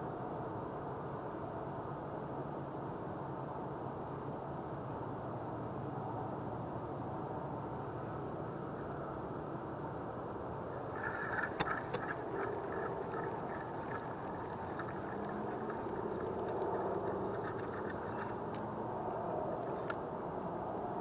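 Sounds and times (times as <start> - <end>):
low background rumble: 10.6 - 21.0.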